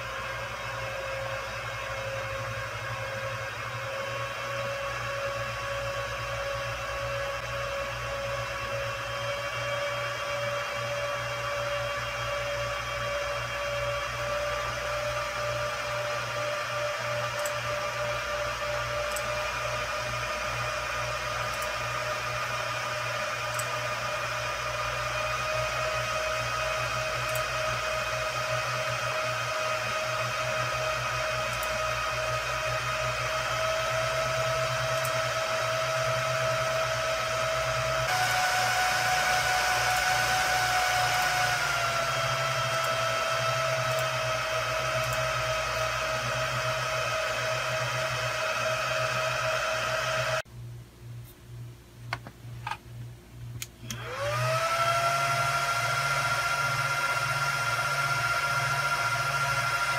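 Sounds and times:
server cooling fans whining: 0:00.0 - 0:59.9
server fans spinning up: 0:00.0 - 0:59.9
clicks: 0:17.3 - 0:17.6, 0:19.1 - 0:19.4, 0:21.4 - 0:21.8, 0:27.2 - 0:27.5, 0:31.5 - 0:31.8, 0:34.8 - 0:35.3, 0:43.6 - 0:46.0, 0:53.5 - 0:54.1.

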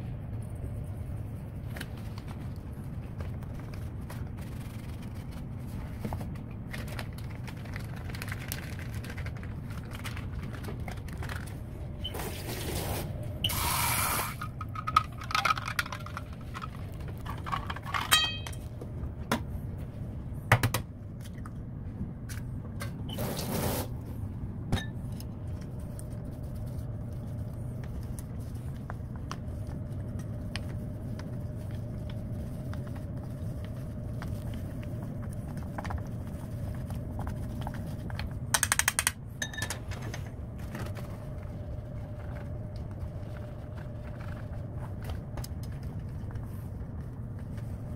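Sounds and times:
low hum: 0:00.0 - 0:47.9.

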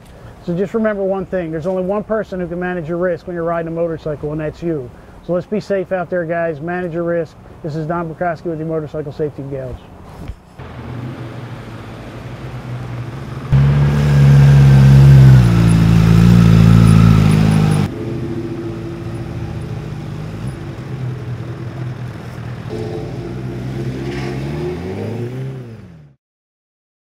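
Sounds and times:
engine accelerating: 0:10.6 - 0:26.2
motorcycle engine passing: 0:10.6 - 0:26.2.

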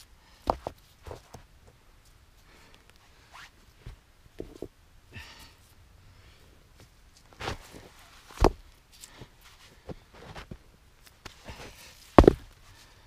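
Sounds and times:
rocks knocking on snow: 0:07.4 - 0:08.6, 0:11.2 - 0:12.6.

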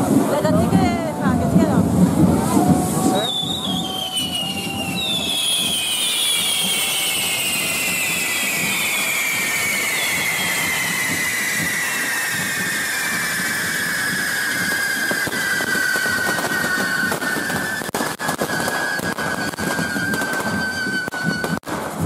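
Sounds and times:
fireworks hissing: 0:00.0 - 0:22.0
falling whistle: 0:02.8 - 0:21.6.

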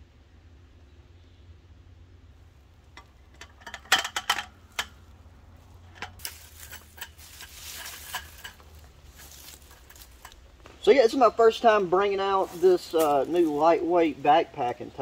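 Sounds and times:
rustling and scraping: 0:02.9 - 0:14.0
metal slats clacking and rattling: 0:03.0 - 0:05.1, 0:05.8 - 0:10.4.

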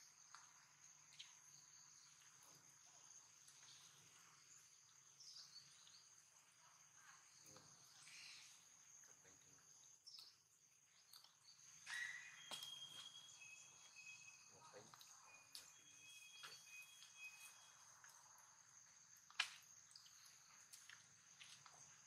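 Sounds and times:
faint chirp: 0:00.0 - 0:18.6.

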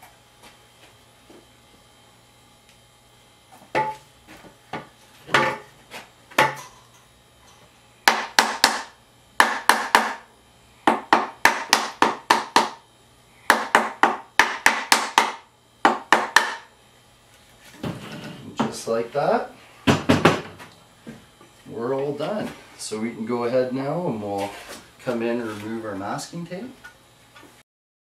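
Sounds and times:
mallet knocking on wood: 0:08.1 - 0:10.2, 0:10.9 - 0:12.8, 0:13.5 - 0:16.6.

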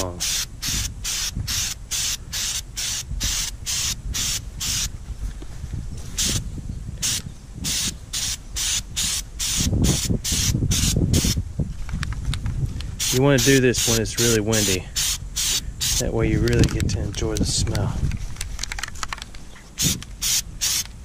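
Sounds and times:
aerosol spray can hissing: 0:00.2 - 0:04.9, 0:07.0 - 0:11.4, 0:13.0 - 0:16.0, 0:19.8 - 0:20.8.

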